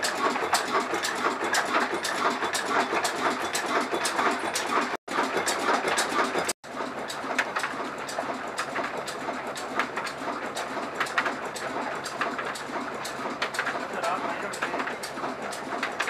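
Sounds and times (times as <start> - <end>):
flour mill engine clattering: 0.0 - 16.0
sharp ticks: 8.5 - 16.0.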